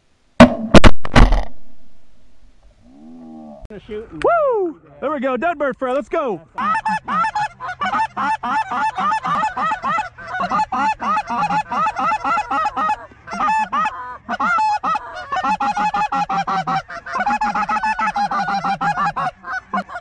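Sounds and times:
geese honking: 6.6 - 20.0.

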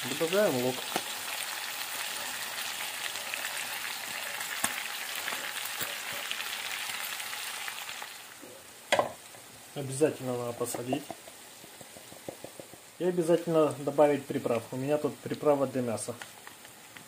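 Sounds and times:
meat sizzling in skillet: 0.0 - 17.0
crackling pops of fat: 0.8 - 1.2, 4.6 - 5.9, 16.1 - 17.0.

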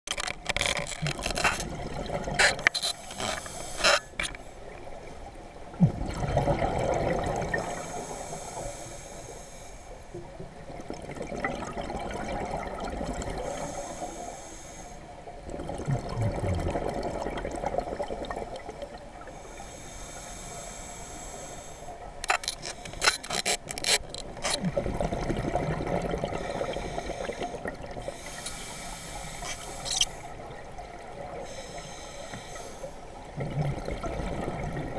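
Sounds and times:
exhaled bubbles rumbling: 0.7 - 2.7, 5.7 - 7.8, 10.2 - 13.5, 15.4 - 19.4, 23.6 - 28.2, 33.2 - 34.9
regulator inhalation hiss: 3.0 - 4.2, 7.7 - 10.0, 13.4 - 15.1, 19.4 - 22.0, 26.7 - 30.2, 31.5 - 33.0.

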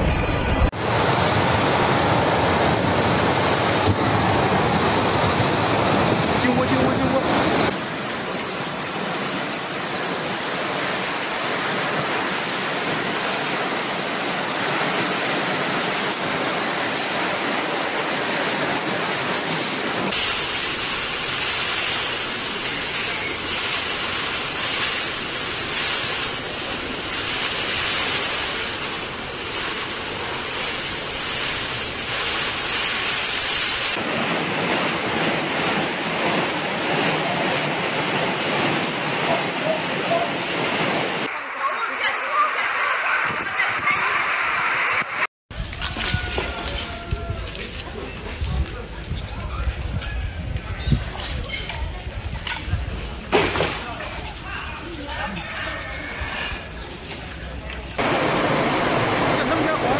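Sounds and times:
loud rushing wind: 0.0 - 7.8, 10.3 - 41.4, 42.6 - 54.9, 58.0 - 59.9
wind buffeting microphone: 43.1 - 55.0.

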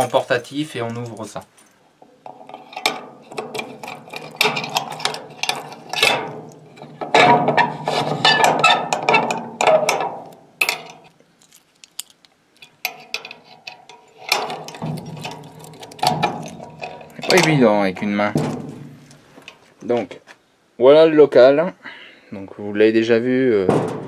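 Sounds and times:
metal rattling and scraping: 0.0 - 20.0
padlock being unlocked: 8.4 - 17.5
keys jangling: 10.7 - 12.8.

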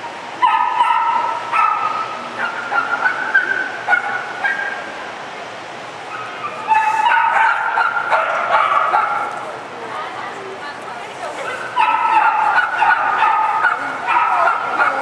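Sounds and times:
small dog yipping: 6.1 - 9.3, 11.5 - 15.0.

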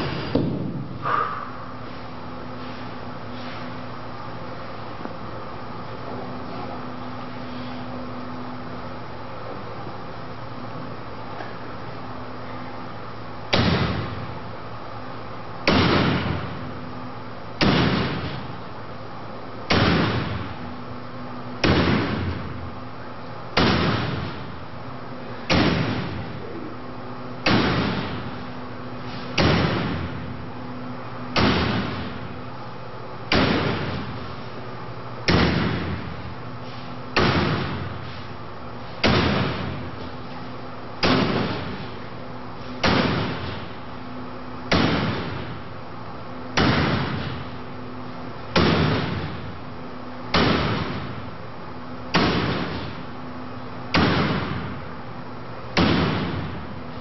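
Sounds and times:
axe striking metal wire mesh: 17.6 - 18.5, 25.5 - 26.2, 27.4 - 28.3, 29.1 - 30.1, 31.4 - 32.2, 33.3 - 34.1, 37.2 - 37.9, 39.0 - 39.8, 41.0 - 42.0, 42.8 - 43.6, 44.7 - 45.4, 46.6 - 47.4, 48.6 - 49.4, 52.1 - 53.0, 53.9 - 54.7.

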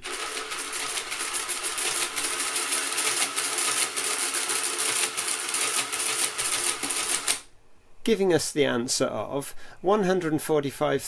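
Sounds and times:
calculator carriage stepping: 0.0 - 7.4
mechanical calculator gears clattering: 0.0 - 7.5.

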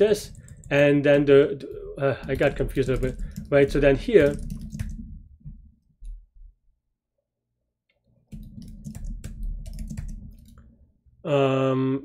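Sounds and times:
computer keyboard typing: 0.1 - 5.2, 8.3 - 10.7.

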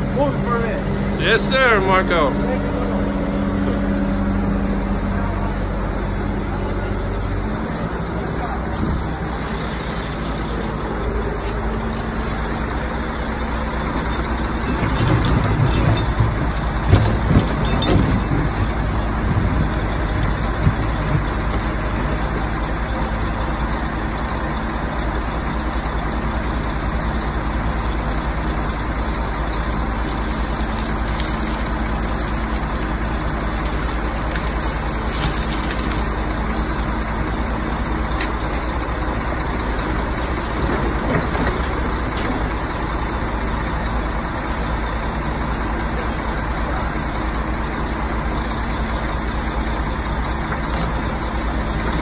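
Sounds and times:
excavator diesel engine running: 0.0 - 52.0
excavator bucket knocking and scraping: 14.0 - 22.4, 39.5 - 42.7.

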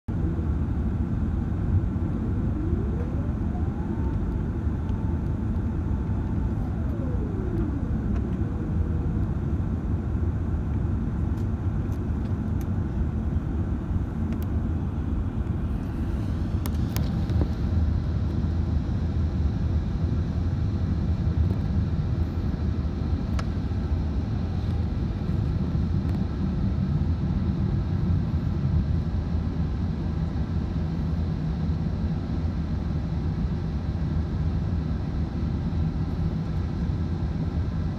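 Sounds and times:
thin whine rising in pitch: 0.1 - 10.4
airplane cabin roar: 0.1 - 37.9.

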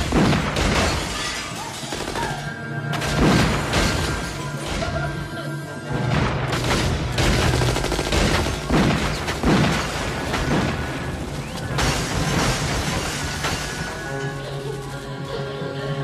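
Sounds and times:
rapid gunfire: 0.0 - 1.2, 1.8 - 4.2, 6.0 - 13.8.

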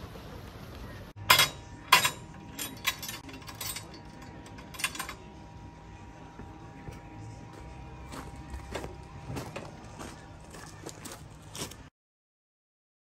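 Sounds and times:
sharp metal clanks: 1.2 - 5.3
lever clicks and rattles: 1.3 - 5.3.

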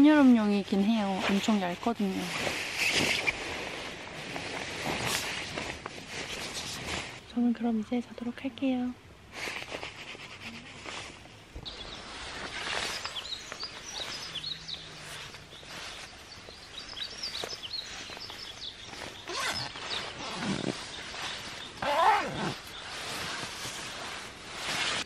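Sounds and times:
nylon sleeping bags rustling: 0.0 - 7.6, 9.3 - 25.0
small birds chirping: 10.4 - 25.0.

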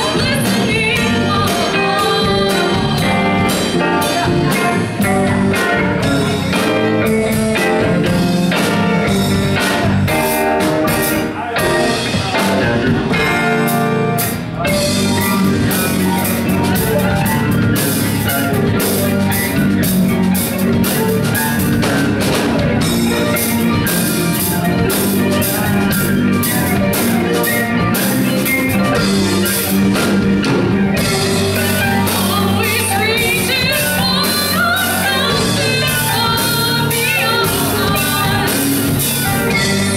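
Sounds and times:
woman singing: 0.0 - 5.8, 31.2 - 39.8
bass guitar: 0.0 - 39.9
drum kit: 0.0 - 39.9
electric guitar: 0.0 - 39.9
keyboard: 0.0 - 39.9.

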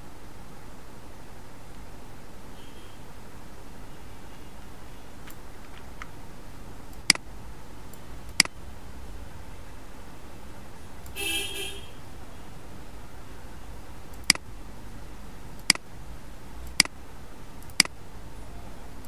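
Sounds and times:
steady low hum: 0.0 - 19.0
computer mouse clicks: 5.2 - 6.2, 6.9 - 7.3, 7.9 - 8.6, 14.1 - 14.5, 15.6 - 15.8, 16.6 - 17.0, 17.6 - 18.0.

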